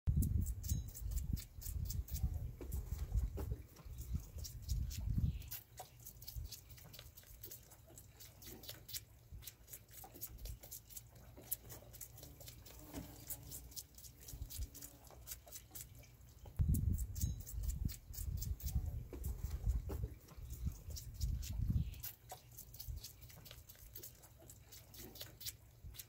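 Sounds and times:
goat kid suckling wet clicks: 0.2 - 26.0
low thumps and rumbling: 1.9 - 5.3, 16.6 - 21.9.

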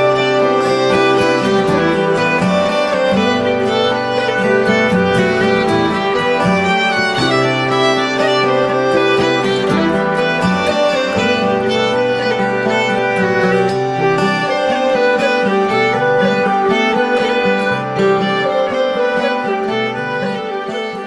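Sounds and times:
instrumental background music: 0.0 - 21.0.

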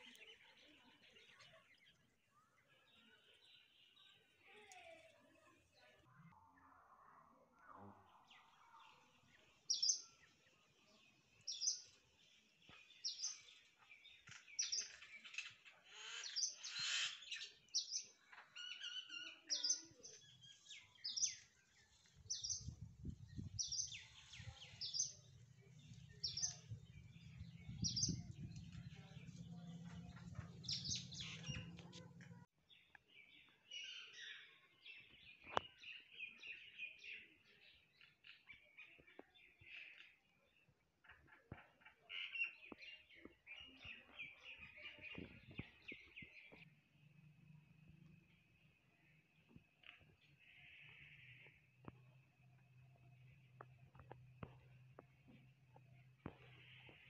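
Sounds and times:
bird chirping: 0.0 - 57.0
birds calling: 23.4 - 32.5.

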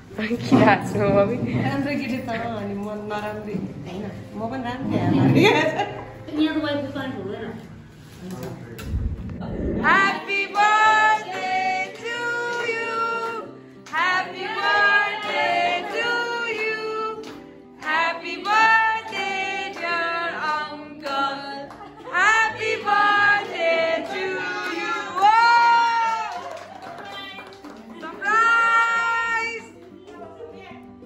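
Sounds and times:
steady low notes: 8.6 - 10.5
voices singing a birthday song: 9.8 - 25.9.

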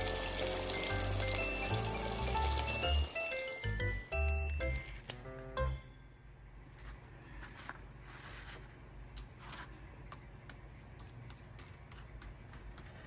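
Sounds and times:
crispy fried chicken crackling: 0.0 - 4.0.

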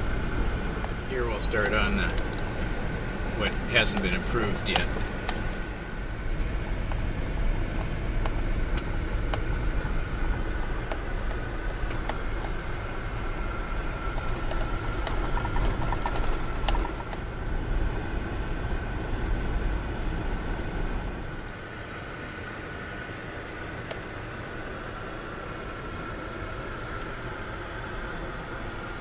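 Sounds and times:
tyres rumbling on dirt road: 0.0 - 22.8
thin steady whine: 0.0 - 29.0
sharp clicks and knocks: 3.8 - 5.5, 14.1 - 17.2.

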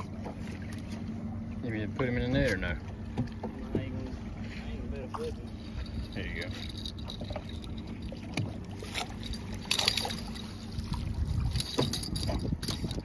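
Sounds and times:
water splashing: 2.8 - 13.0
wind rumble on microphone: 9.3 - 13.0.

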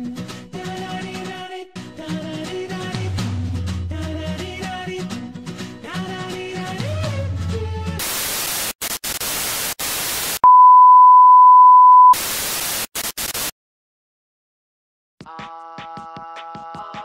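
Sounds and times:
music: 0.0 - 8.0, 15.2 - 17.0
tv static hiss: 8.0 - 10.4, 12.0 - 13.5
test-tone beep: 10.4 - 12.2.

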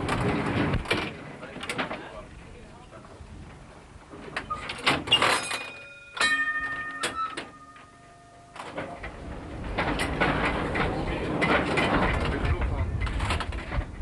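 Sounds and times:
ringing metallic strikes: 5.4 - 9.0
tram running noise: 5.5 - 14.0.

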